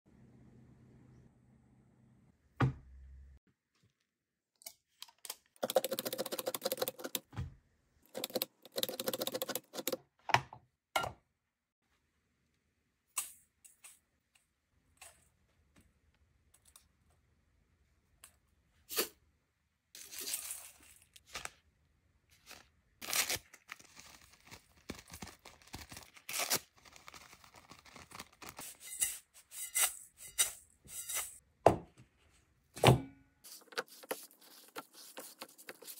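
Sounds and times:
spoon scraping and stirring bowl: 28.6s - 31.4s, 33.5s - 35.9s.

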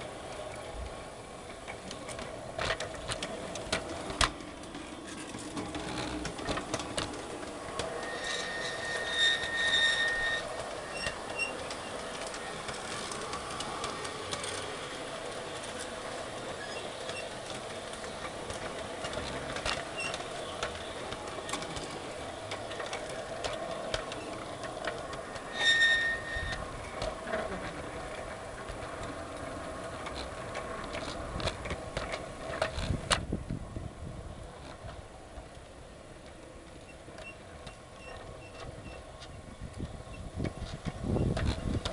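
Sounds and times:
model train motor running: 0.0s - 33.2s
high-pitched wheel squeals: 7.7s - 12.1s, 25.2s - 27.0s.

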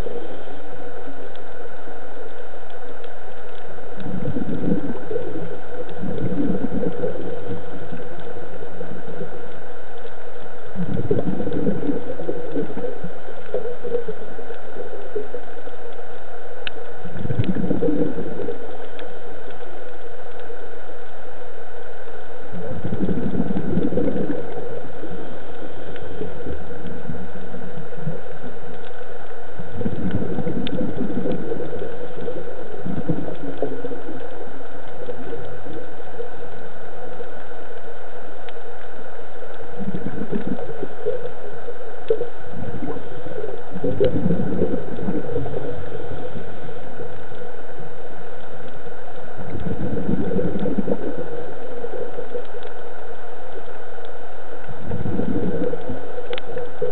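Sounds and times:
steady underwater hum: 0.0s - 56.9s
underwater breath bubbles: 4.0s - 9.3s, 10.8s - 15.4s, 17.1s - 18.9s, 22.5s - 28.5s, 29.7s - 35.9s, 39.7s - 47.4s, 49.4s - 52.6s, 54.8s - 56.9s.

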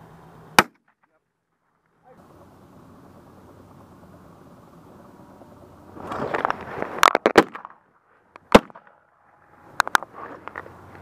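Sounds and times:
shotgun shots: 0.6s - 1.0s, 8.5s - 8.9s.

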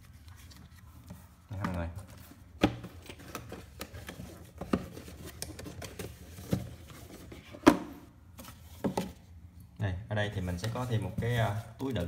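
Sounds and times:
cardboard box rustling and scraping: 3.1s - 7.6s.

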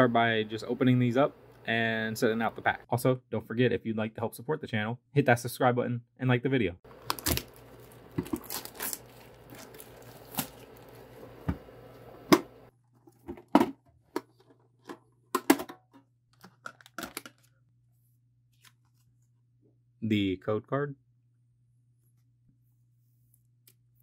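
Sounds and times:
plastic wrap tearing and crinkling: 6.9s - 11.4s.

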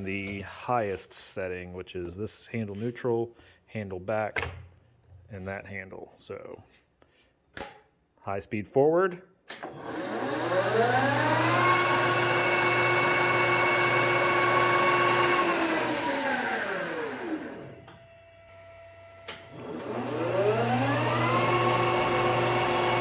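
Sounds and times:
lathe gears and motor whining: 9.6s - 23.0s.

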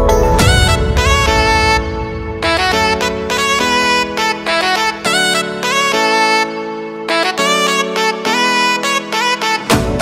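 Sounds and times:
low bass: 0.0s - 4.8s.

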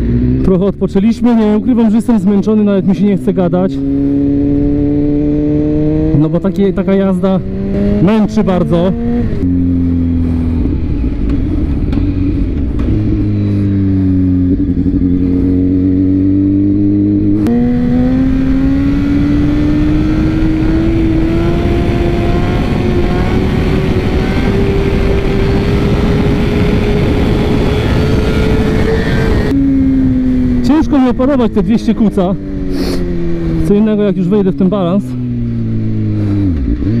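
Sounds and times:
motorcycle engine running: 0.0s - 37.0s
wind rushing past helmet: 10.0s - 30.6s.

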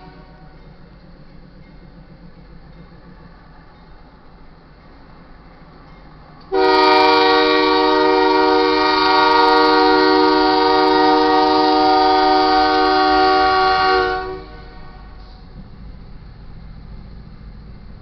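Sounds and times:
locomotive air horn chord: 0.0s - 0.6s, 6.5s - 15.4s.

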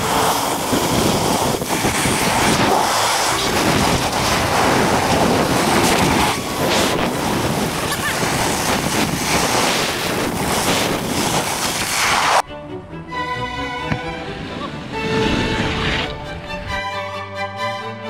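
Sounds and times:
snowboard scraping over snow: 0.0s - 12.4s, 14.3s - 16.2s
wind rushing over microphone: 0.0s - 12.4s, 13.8s - 16.8s.

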